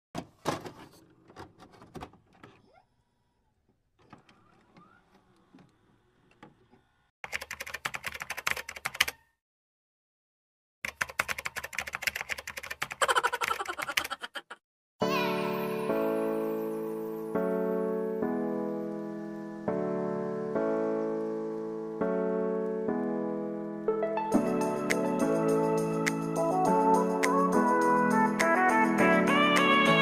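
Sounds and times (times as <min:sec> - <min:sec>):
rapid keyboard key clicks: 0:07.3 - 0:09.2, 0:10.9 - 0:14.4.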